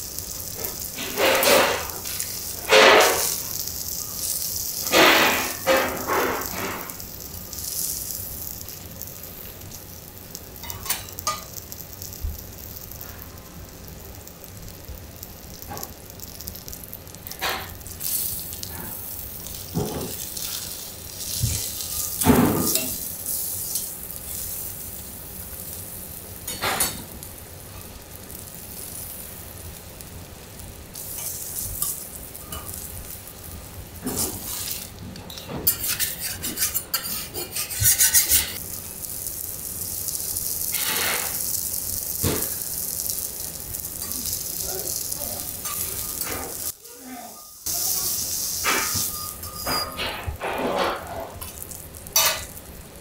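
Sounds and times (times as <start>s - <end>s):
meat sizzling on a griddle: 0.0s - 53.0s
metal utensils knocking and scraping: 48.6s - 51.6s.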